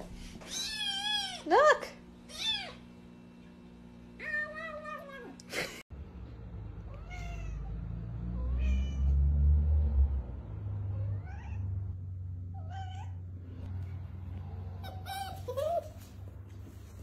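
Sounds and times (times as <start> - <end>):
cat meowing: 6.9 - 7.8, 8.4 - 9.2.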